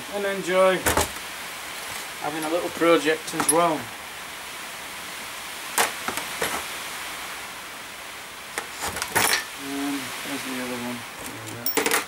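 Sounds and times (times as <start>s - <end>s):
steady background hiss: 0.0s - 12.0s
small tools clicking and knocking: 11.5s - 12.0s.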